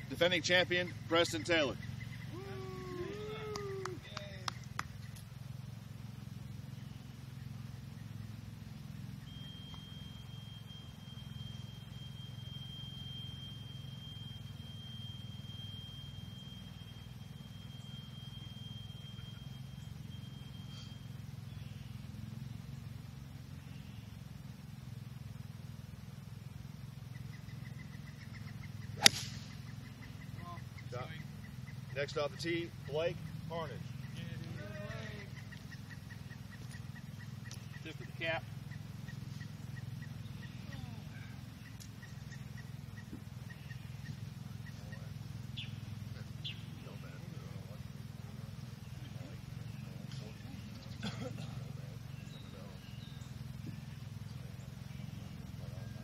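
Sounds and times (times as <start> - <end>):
distant voices: 0.0 - 56.0
steady low rumble: 0.0 - 56.0
golf club striking ball: 28.8 - 29.8.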